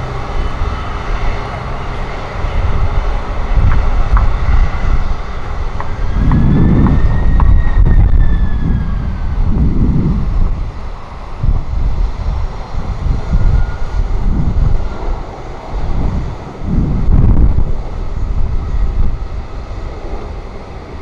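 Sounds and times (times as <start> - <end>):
faint engine whine: 0.0 - 21.0
jet engines rumbling: 0.0 - 21.0
wind buffeting microphone: 0.0 - 21.0.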